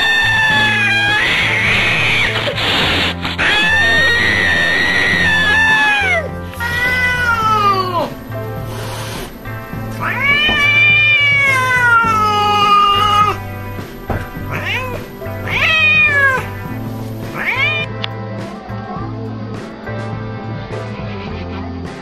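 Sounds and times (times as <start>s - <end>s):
cat yowling angrily: 0.0s - 2.8s, 3.4s - 13.5s, 14.2s - 17.9s
background music: 0.0s - 22.0s.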